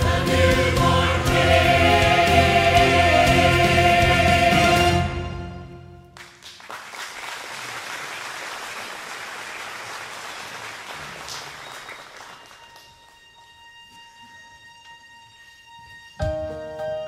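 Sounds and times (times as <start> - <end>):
congregation applauding: 6.0 - 13.6.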